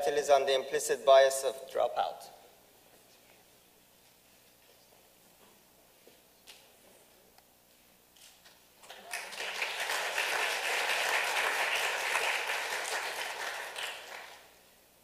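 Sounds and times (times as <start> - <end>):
audience applauding: 8.8 - 14.5.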